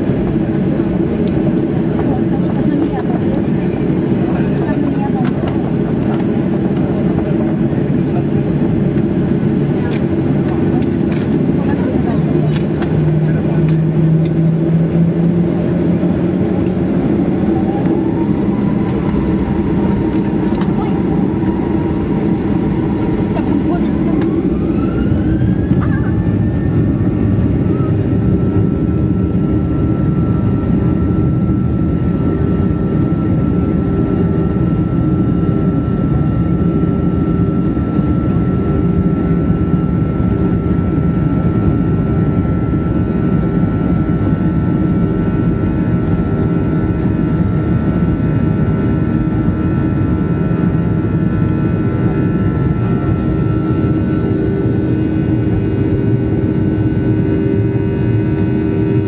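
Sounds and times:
aircraft rolling rumble: 0:00.0 - 0:59.0
jet engine whine: 0:00.0 - 0:59.0.

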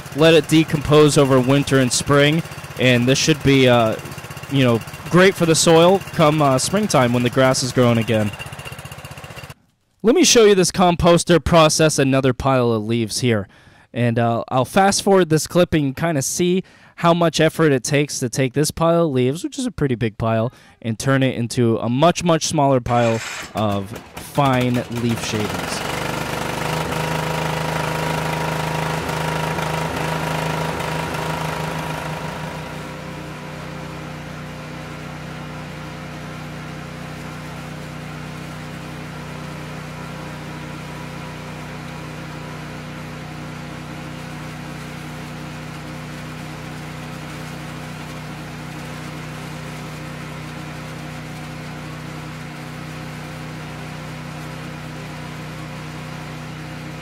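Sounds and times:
single-cylinder engine running: 0:00.0 - 0:09.6, 0:23.1 - 0:57.0.

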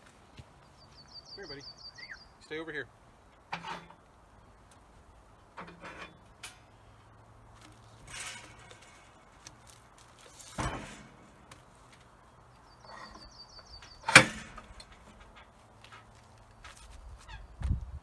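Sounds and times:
log knocking and scraping on steel: 0:03.4 - 0:04.0, 0:05.5 - 0:06.6, 0:07.5 - 0:12.2, 0:12.8 - 0:16.8.

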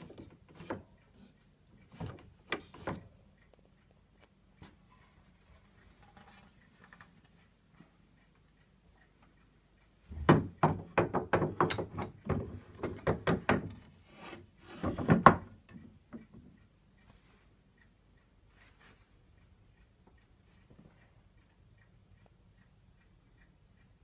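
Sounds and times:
sharp wooden knocks and clacks: 0:10.1 - 0:13.9, 0:14.7 - 0:15.6.

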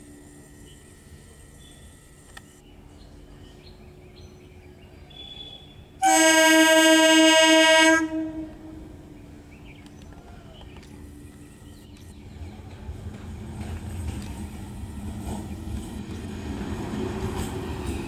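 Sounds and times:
train rumbling: 0:00.0 - 0:18.0
train horn blast: 0:05.2 - 0:09.0.

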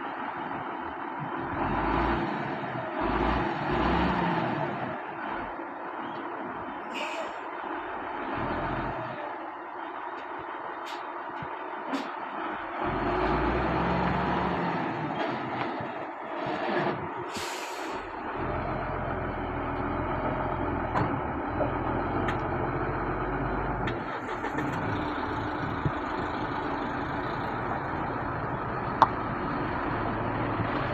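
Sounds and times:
diesel engine running: 0:00.0 - 0:30.9
air hiss: 0:17.3 - 0:18.1.

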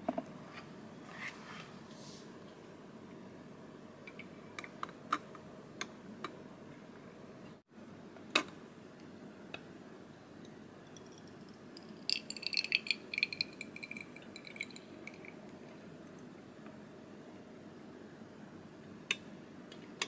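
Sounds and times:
tea gurgling and dripping: 0:10.9 - 0:16.4.

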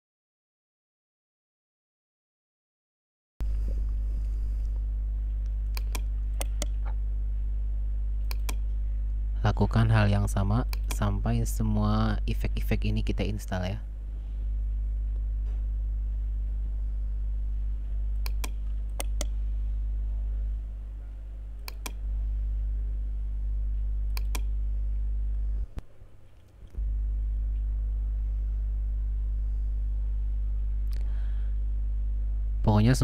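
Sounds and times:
low electrical hum: 0:03.4 - 0:33.0
computer mouse clicks: 0:05.7 - 0:06.9, 0:08.2 - 0:08.7, 0:10.7 - 0:11.1, 0:18.2 - 0:19.4, 0:21.6 - 0:22.0, 0:24.1 - 0:24.5.

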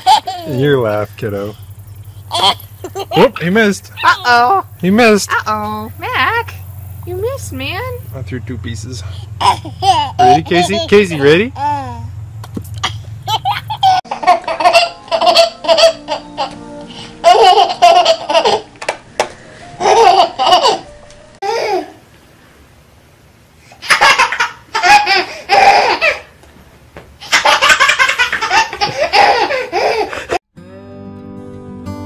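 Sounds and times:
baby laughing: 0:00.0 - 0:00.7, 0:02.3 - 0:04.6, 0:09.4 - 0:12.1, 0:12.8 - 0:18.9, 0:19.8 - 0:22.0, 0:23.8 - 0:26.3, 0:27.2 - 0:30.4.

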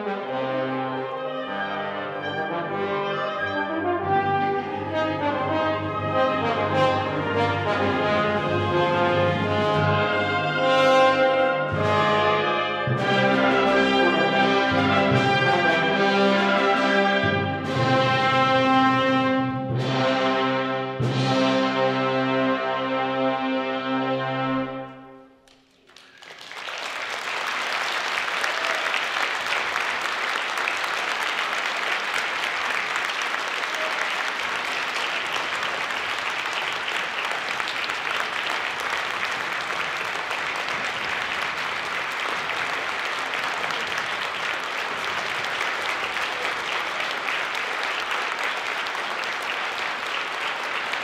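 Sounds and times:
audience applause: 0:25.5 - 0:51.0.

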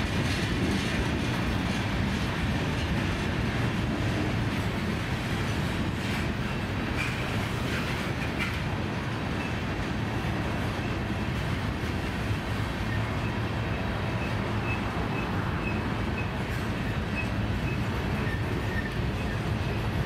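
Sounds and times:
freight train rolling past: 0:00.0 - 0:20.0.

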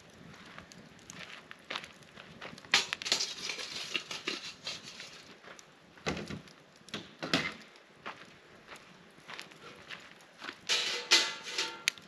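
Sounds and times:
footsteps on dry grass: 0:08.0 - 0:10.8
metal grate knocking on rocks: 0:10.7 - 0:12.0.

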